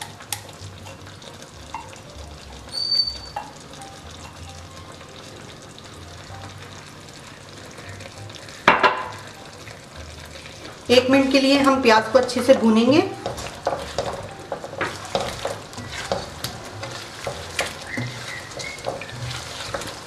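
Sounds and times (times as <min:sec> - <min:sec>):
meat sizzling in a pan: 0:00.0 - 0:20.0
sizzle and clatter burst: 0:13.1 - 0:20.0.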